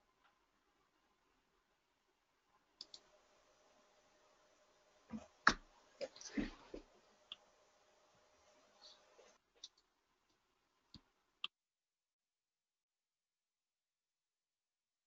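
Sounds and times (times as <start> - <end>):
faint steady hiss: 0.0 - 11.5.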